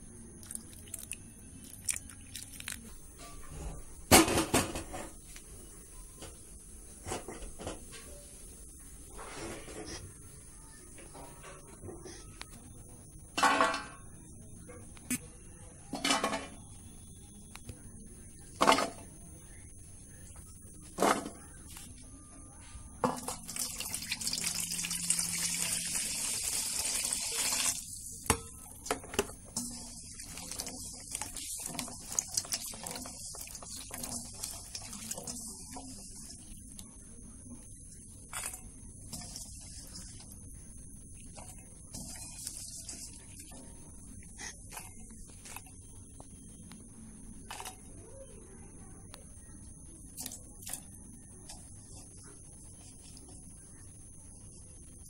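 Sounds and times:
chillies clattering in metal bowl: 28.2 - 36.8, 38.3 - 40.4, 41.3 - 43.8.

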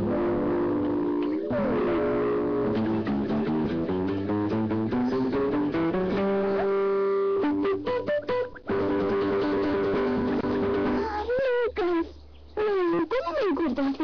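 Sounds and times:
plucked-string music with bass: 0.0 - 11.1.

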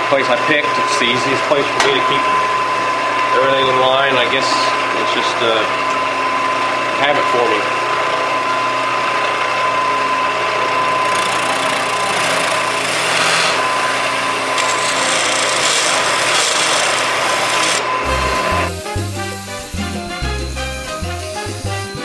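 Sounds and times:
wood lathe whining: 2.0 - 22.0
gouge shaving hiss: 14.6 - 22.0.

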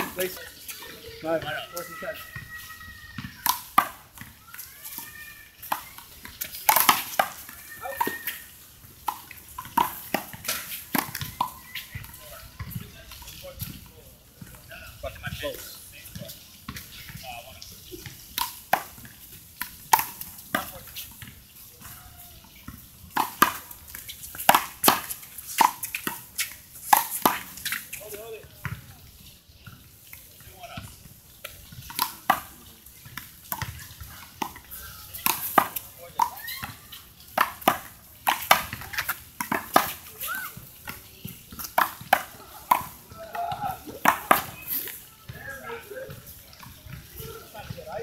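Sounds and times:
sneaker squeaks: 33.0 - 37.2.

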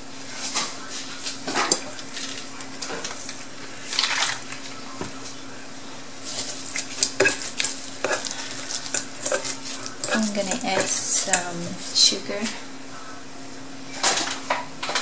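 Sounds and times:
steady low hum: 0.0 - 15.0
hand mixing meat in metal bowl: 0.4 - 5.5, 6.2 - 12.3.

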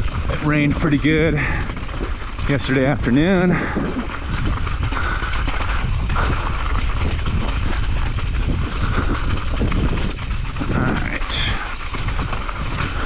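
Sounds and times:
bike rattling over rocks: 0.0 - 13.0
tyres crunching on gravel: 0.0 - 13.0
wind rumbling on microphone: 0.0 - 13.0.

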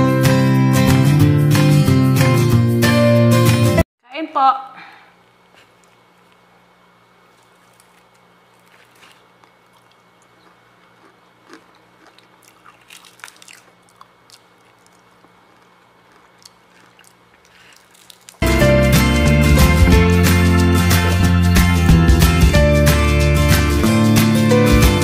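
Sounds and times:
faint steady hum: 4.0 - 18.4
fried chicken crust crunching: 5.6 - 18.4
loud music: 18.4 - 25.0.

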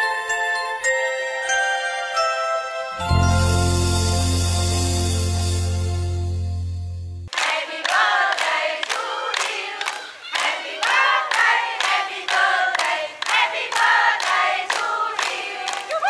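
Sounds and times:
group of people singing: 7.3 - 15.9.

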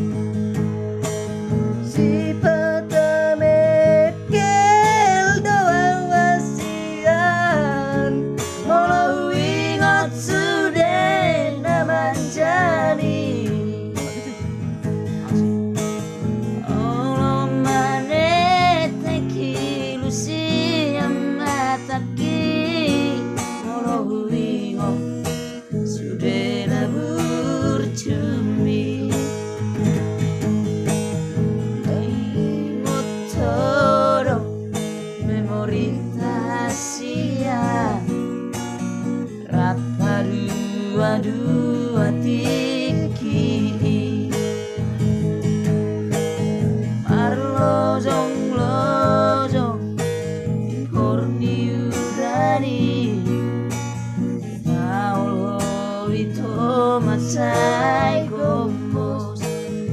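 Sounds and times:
acoustic guitar strumming: 0.0 - 59.9
two men singing: 2.0 - 14.3, 18.8 - 25.2, 47.1 - 49.8, 50.8 - 53.3, 54.7 - 59.6.

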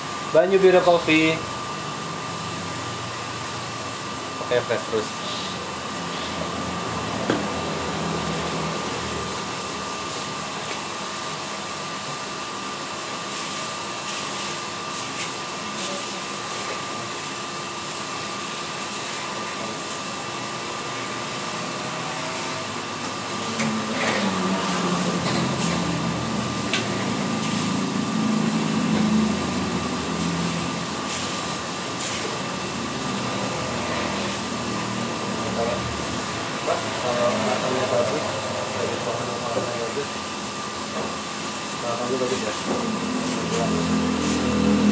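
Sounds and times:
coffee roaster machine hum: 0.0 - 44.9.

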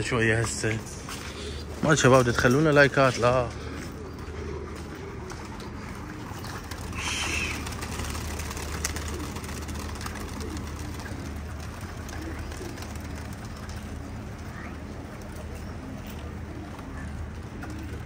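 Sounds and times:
pigeons cooing: 0.0 - 18.0
wings clattering: 2.0 - 18.0.

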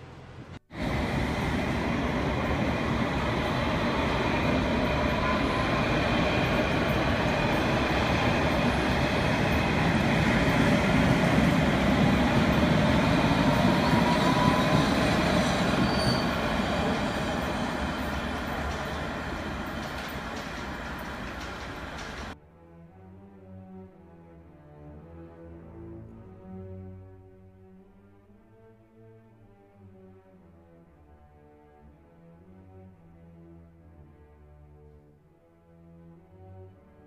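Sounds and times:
train wheels rumbling on rail: 0.0 - 22.4.

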